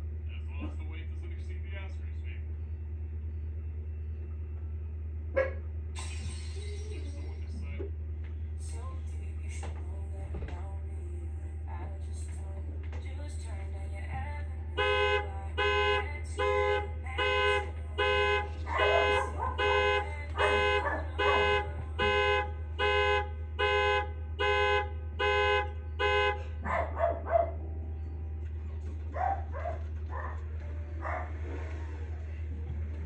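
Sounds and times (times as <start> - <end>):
car alarm horn blasts: 14.8 - 26.6.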